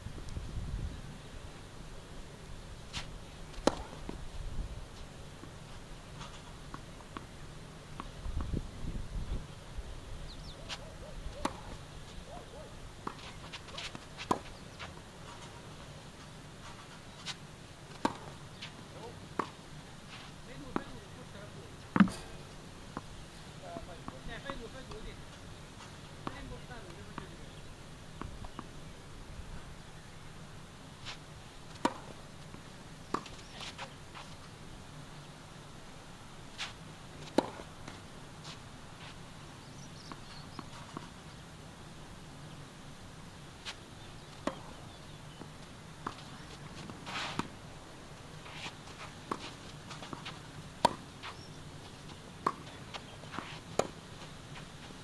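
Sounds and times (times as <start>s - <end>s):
tennis ball bouncing on court: 3.5s - 4.2s, 10.7s - 11.8s, 13.0s - 15.6s, 16.7s - 19.6s, 20.6s - 21.0s, 21.9s - 23.1s, 26.2s - 27.3s, 31.7s - 33.9s, 37.2s - 38.0s, 44.3s - 47.5s, 48.9s - 55.0s.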